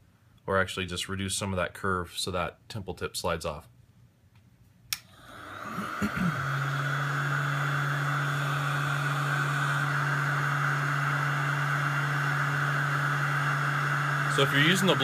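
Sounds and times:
heater blower running: 5.0s - 15.0s.

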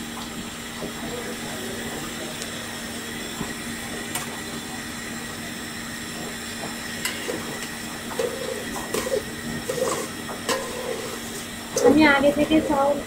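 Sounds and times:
rice sizzling in oil: 1.8s - 13.0s
metal spoon scraping pot: 8.1s - 11.4s.

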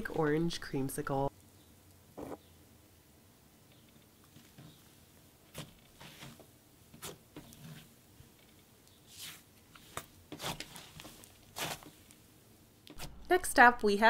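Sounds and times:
slime crackling and squishing: 7.0s - 7.8s, 9.0s - 12.0s.

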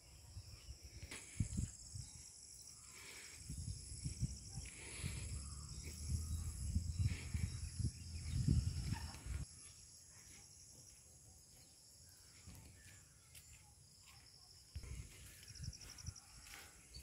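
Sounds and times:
insects chirring: 0.0s - 17.0s
low rumble on microphone: 3.6s - 9.4s.

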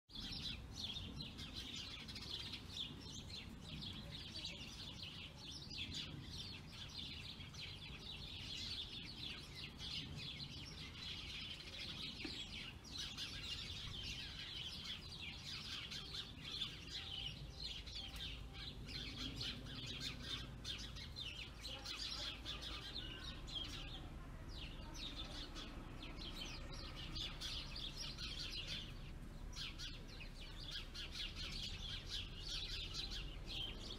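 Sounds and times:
songbirds chirping: 0.1s - 33.9s.

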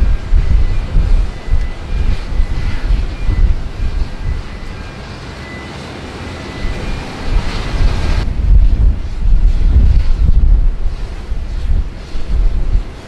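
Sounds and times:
high engine whine: 0.0s - 13.0s
jet engines running: 0.0s - 13.0s
wind buffeting microphone: 0.0s - 13.0s.

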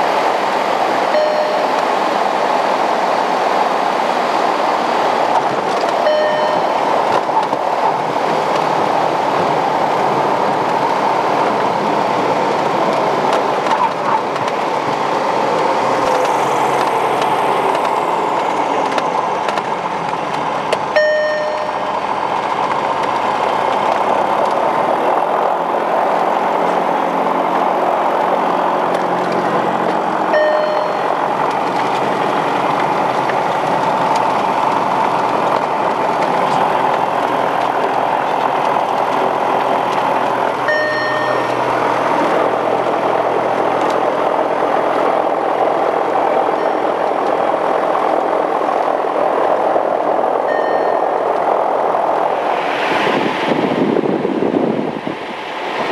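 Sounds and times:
airflow rumble: 0.0s - 55.9s
airplane engine at low power: 0.0s - 55.9s
short beeps: 1.1s - 1.8s, 6.0s - 6.8s, 21.0s - 21.9s, 30.4s - 31.1s, 40.7s - 41.5s, 50.5s - 51.1s.

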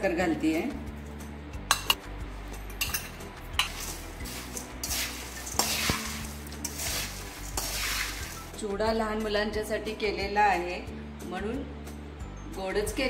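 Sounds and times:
spoon clinking on steel bowl: 1.7s - 2.0s, 2.7s - 8.3s
dry flakes rustling: 3.6s - 8.5s.

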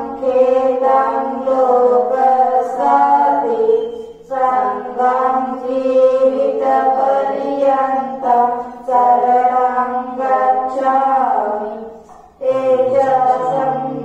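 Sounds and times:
person chanting long notes: 12.4s - 14.0s.

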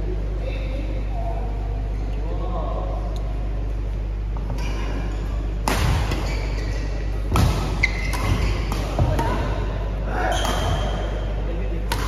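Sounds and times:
steady low hum: 0.0s - 12.0s
rackets hitting shuttlecock: 5.6s - 6.2s, 7.3s - 9.6s, 10.3s - 11.2s.

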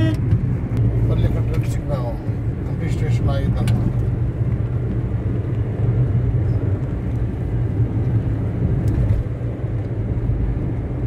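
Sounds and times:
car interior road rumble: 0.0s - 11.0s.

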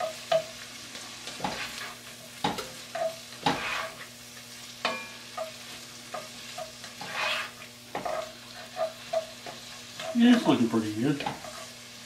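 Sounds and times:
onions sizzling: 0.0s - 12.0s
spoon scraping a pot: 2.9s - 4.1s, 4.9s - 10.4s, 11.2s - 11.8s.

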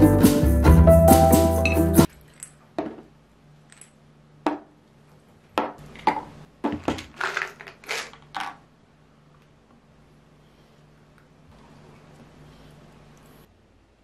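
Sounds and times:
tablets rattling onto table: 6.0s - 8.6s.

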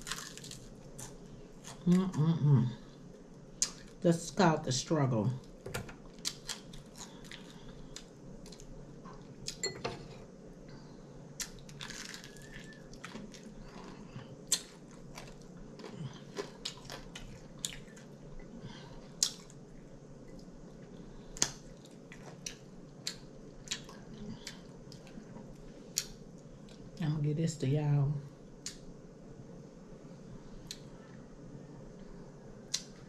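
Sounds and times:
chewing crispy chicken wings: 0.0s - 2.4s, 6.1s - 9.6s, 11.4s - 18.2s.

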